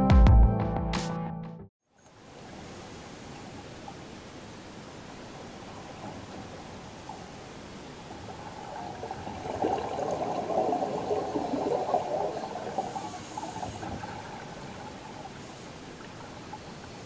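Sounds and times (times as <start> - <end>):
faint underwater hiss: 1.9 - 17.0
exhaled breath bubbling underwater: 8.3 - 15.6.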